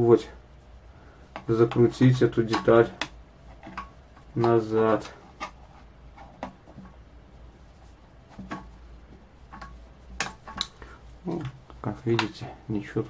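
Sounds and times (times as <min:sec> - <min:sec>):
light clicks and taps: 0:01.3 - 0:05.6, 0:08.3 - 0:12.5.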